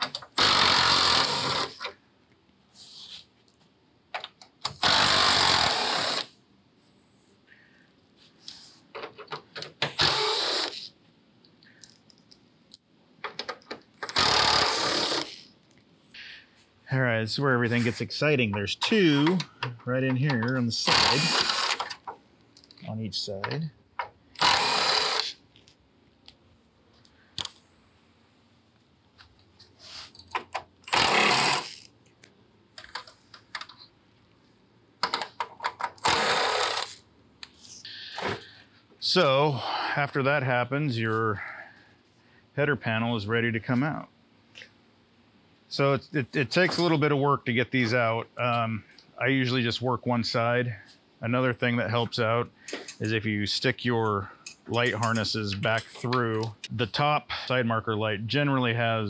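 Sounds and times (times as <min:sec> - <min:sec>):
impact driver bursts: 0:00.0 - 0:01.9, 0:04.7 - 0:06.3, 0:09.8 - 0:10.9, 0:14.0 - 0:15.4, 0:20.8 - 0:22.1, 0:24.4 - 0:25.4, 0:30.8 - 0:31.9, 0:35.9 - 0:37.0.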